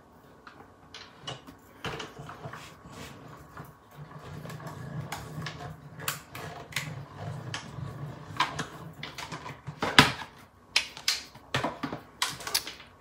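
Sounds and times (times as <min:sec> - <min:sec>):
sharp clicks and cracks: 0:10.7 - 0:13.0.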